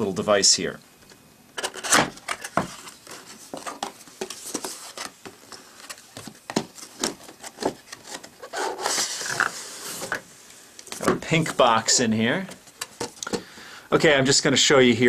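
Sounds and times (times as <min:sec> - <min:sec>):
cardboard scraping and knocking: 0:01.7 - 0:10.2.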